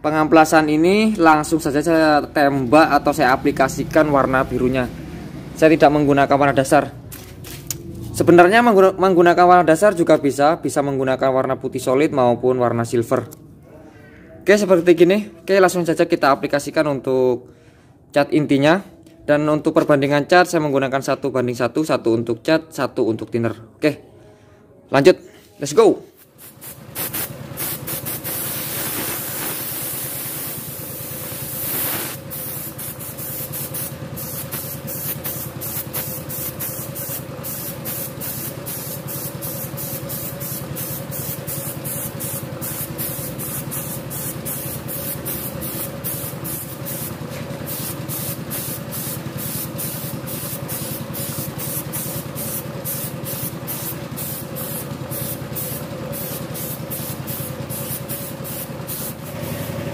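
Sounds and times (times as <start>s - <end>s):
spray gun hissing: 26.2s - 59.9s.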